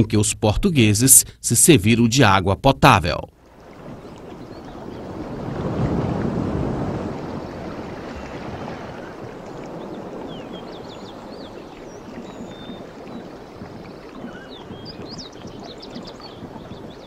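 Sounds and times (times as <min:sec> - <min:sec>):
small birds chirping: 0:03.6 - 0:05.6, 0:07.2 - 0:17.0
wind rushing on microphone: 0:03.6 - 0:17.0.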